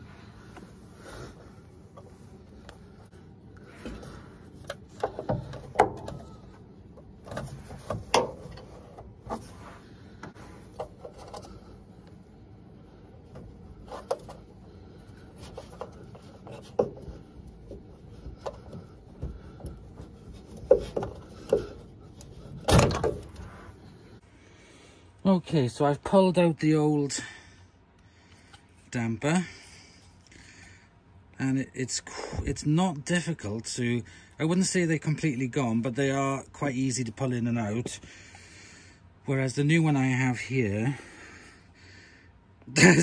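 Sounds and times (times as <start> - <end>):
clicks and knocks of plastic parts: 3.8 - 9.5, 15.4 - 23.5.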